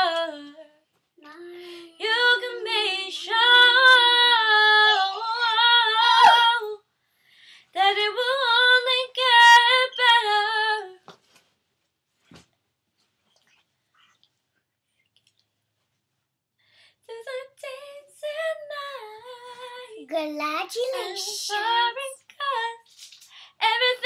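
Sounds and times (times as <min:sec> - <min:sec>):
small boy singing: 0:00.0 - 0:06.7, 0:17.3 - 0:22.9
girl singing a cappella: 0:00.0 - 0:06.8, 0:07.7 - 0:11.0, 0:17.1 - 0:22.9, 0:23.5 - 0:24.0.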